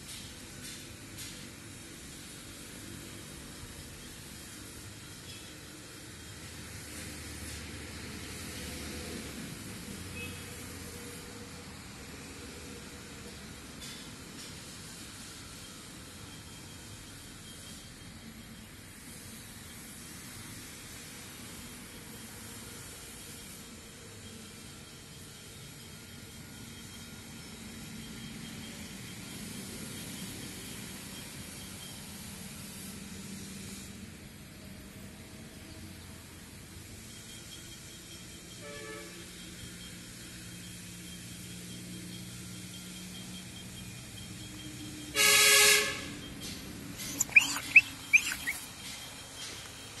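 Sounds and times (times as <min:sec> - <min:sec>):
short high chirps: 0:47.0 - 0:48.8.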